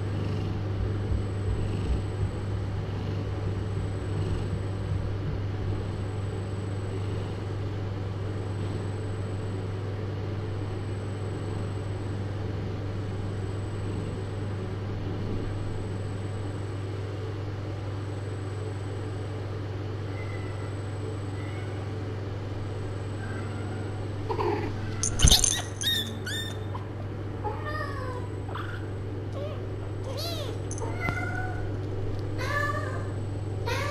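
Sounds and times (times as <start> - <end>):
low room hum: 0.0 - 33.9
kitten mewing: 23.2 - 31.7.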